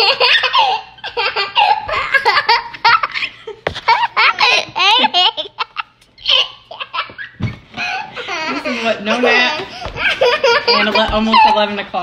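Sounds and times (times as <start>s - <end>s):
woman laughing: 0.0s - 6.5s, 7.8s - 12.0s
girl giggling and laughing: 0.0s - 11.8s.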